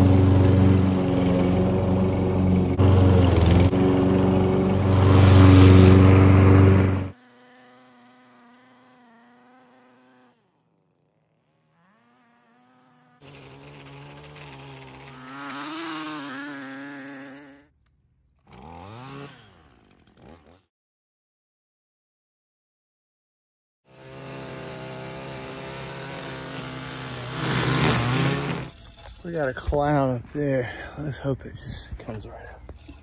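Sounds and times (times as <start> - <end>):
lawn mower engine running: 0.0 - 17.6, 23.9 - 29.7
string trimmer engine: 0.0 - 17.7, 18.4 - 20.7, 23.9 - 29.3.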